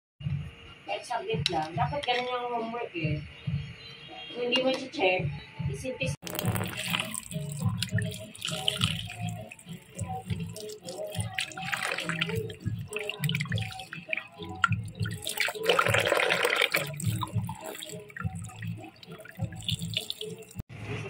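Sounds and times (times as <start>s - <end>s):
music: 0.2s - 21.0s
tap water splashing into basin: 6.2s - 20.6s.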